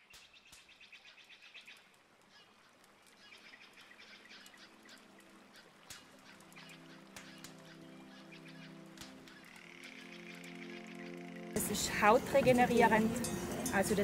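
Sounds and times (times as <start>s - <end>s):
high chirps and clicks: 3.1s - 11.6s.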